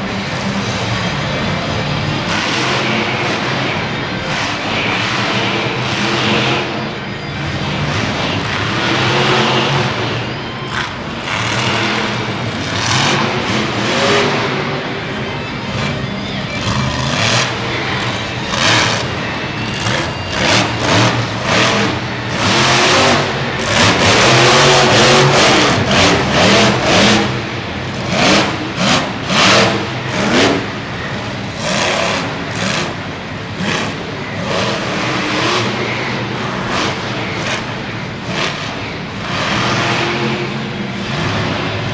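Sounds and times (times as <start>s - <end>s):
truck engine revving: 0.0s - 41.9s.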